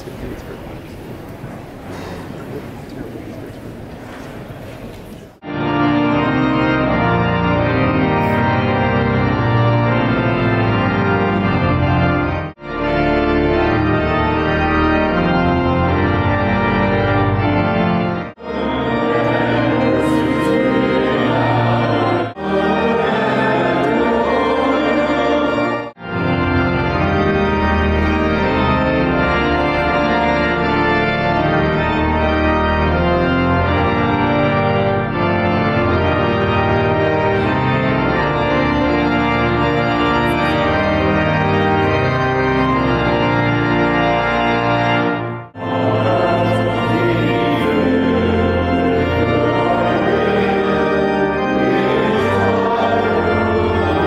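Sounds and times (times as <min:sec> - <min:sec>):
pipe organ chords: 0:05.0 - 0:54.0.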